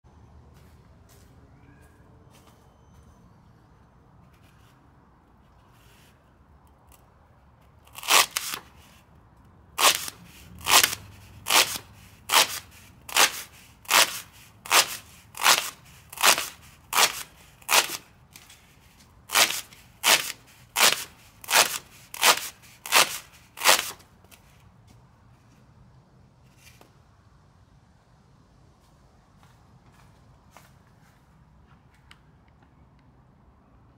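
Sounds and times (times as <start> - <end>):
knife slicing through foam: 7.9 - 8.7, 9.8 - 18.5, 19.3 - 24.1.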